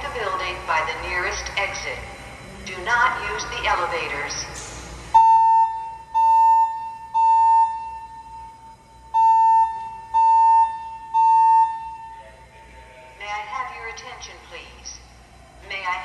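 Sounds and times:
fire alarm beeps: 0:03.1 - 0:12.4.

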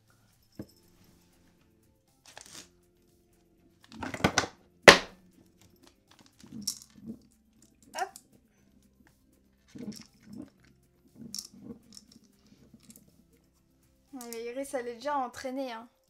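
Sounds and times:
faint background music: 0:00.0 - 0:16.0
plastic toy knocking: 0:04.0 - 0:05.1.

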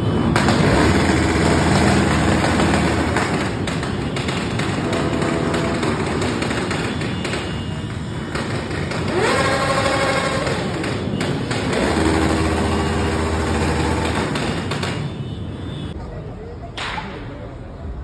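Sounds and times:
motorcycles idling: 0:00.3 - 0:15.1
motorcycle engine revving: 0:00.4 - 0:03.7, 0:08.2 - 0:14.8.

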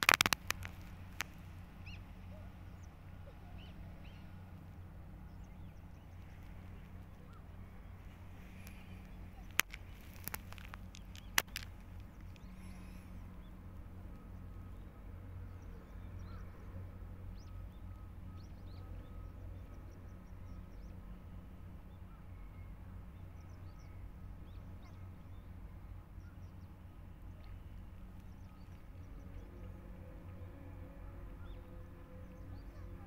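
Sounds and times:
steady low rumble: 0:00.0 - 0:33.0.

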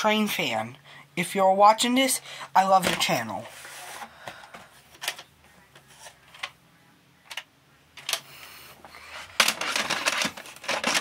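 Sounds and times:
plastic cassettes clattering: 0:02.6 - 0:03.2, 0:03.8 - 0:06.6, 0:07.3 - 0:11.0.

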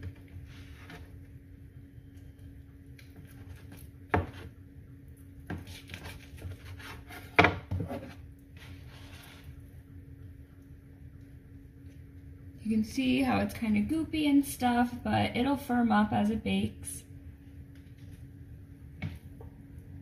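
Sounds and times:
knife cutting dough: 0:05.4 - 0:09.6.

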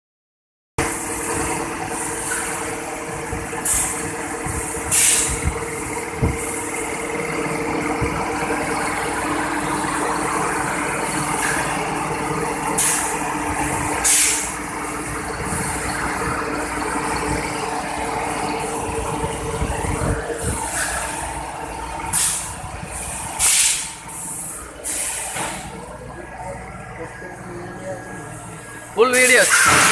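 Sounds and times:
air compressor humming and clattering: 0:00.8 - 0:29.9
sharp air hisses: 0:14.0 - 0:14.5, 0:22.1 - 0:22.5, 0:23.4 - 0:25.4.

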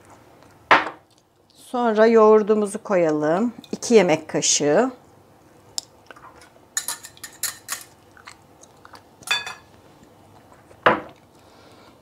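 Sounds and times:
utensils clinking against glass: 0:06.8 - 0:07.9, 0:09.3 - 0:09.7.

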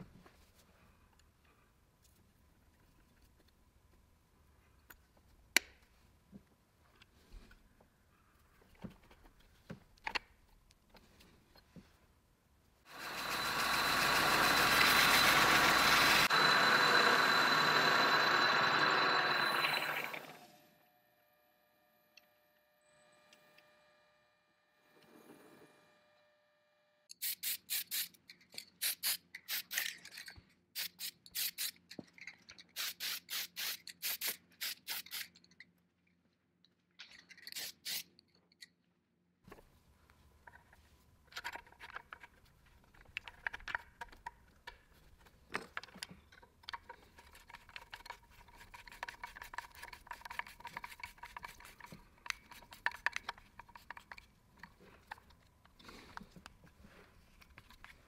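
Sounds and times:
parts clicking and rubbing: 0:27.1 - 0:35.8, 0:36.7 - 0:38.8, 0:39.5 - 0:58.0.

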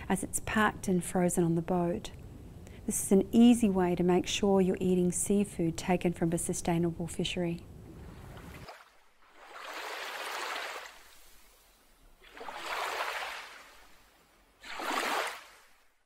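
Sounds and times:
ocean waves washing in: 0:07.8 - 0:16.0.

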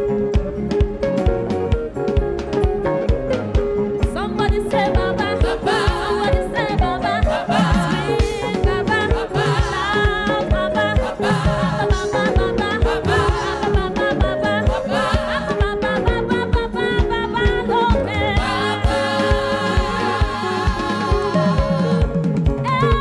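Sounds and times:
band drum beat: 0:00.0 - 0:23.0
woman singing lead vocal: 0:04.0 - 0:23.0
choir singing: 0:05.0 - 0:16.0, 0:18.2 - 0:22.4.

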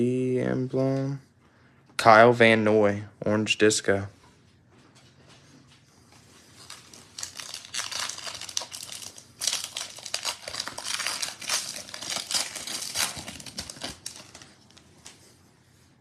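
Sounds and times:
foil wrapper crinkling: 0:06.4 - 0:14.9.

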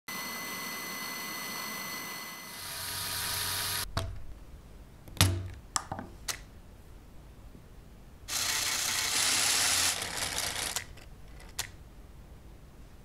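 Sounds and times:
plastic clicks: 0:10.7 - 0:11.8.

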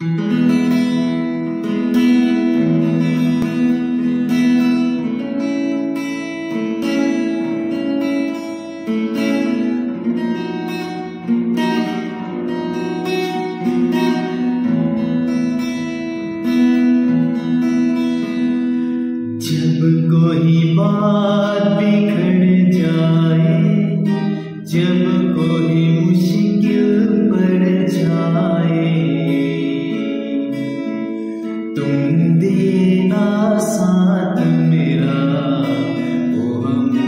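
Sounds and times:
acoustic guitar strummed and picked: 0:00.0 - 0:37.0
man singing: 0:19.2 - 0:37.0.

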